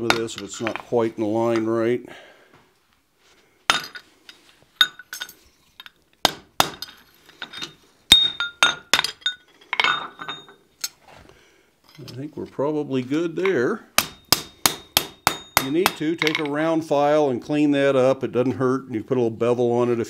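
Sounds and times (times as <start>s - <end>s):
hammer striking metal on anvil: 13.5s - 16.4s.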